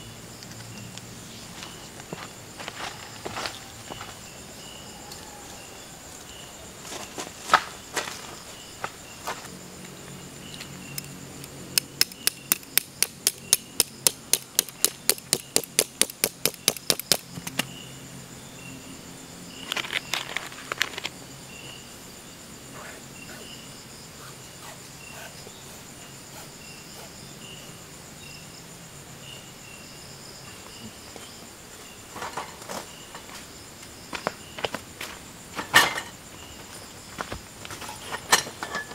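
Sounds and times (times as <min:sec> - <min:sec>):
insects chirping: 0:00.0 - 0:38.9
hammer striking tent stake: 0:11.8 - 0:17.2.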